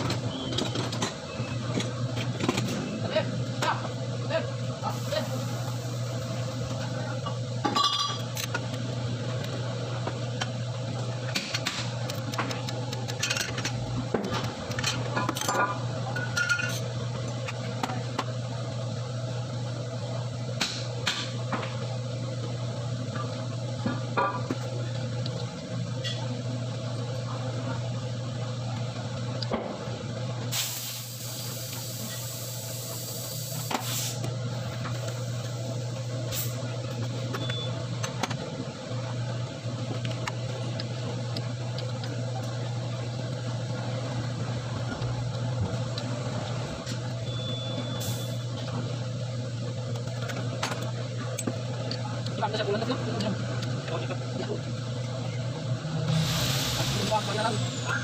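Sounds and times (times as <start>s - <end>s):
steady low hum: 0.0s - 58.0s
hiss: 30.5s - 34.2s, 56.1s - 57.2s.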